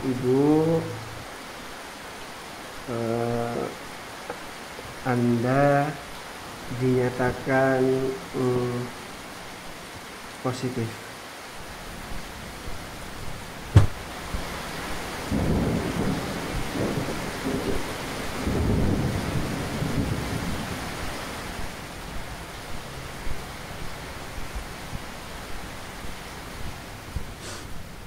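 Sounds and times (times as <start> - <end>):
steady rain: 0.0 - 28.0
thunder rumbling: 13.2 - 27.8.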